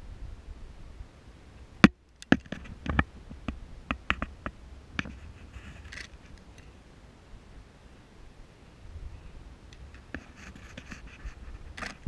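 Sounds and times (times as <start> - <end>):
soft rustle: 5.0 - 7.0, 8.6 - 12.0
camera gear clicks and knocks: 11.8 - 12.0.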